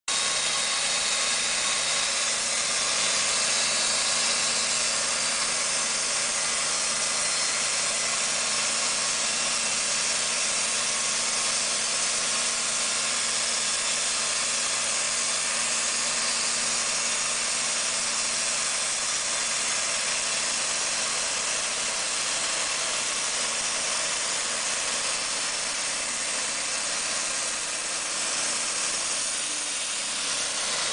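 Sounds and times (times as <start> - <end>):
band saw blade hissing in wood: 0.1 - 30.9
sawmill engine running: 0.1 - 30.9.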